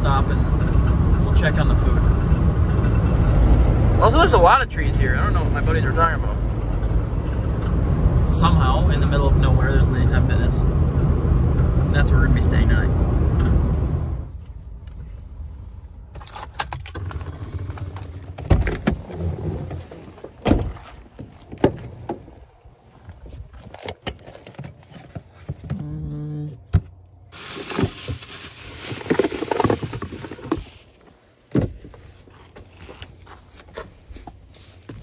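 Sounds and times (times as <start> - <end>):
truck doors clicking and knocking: 16.2 - 22.5.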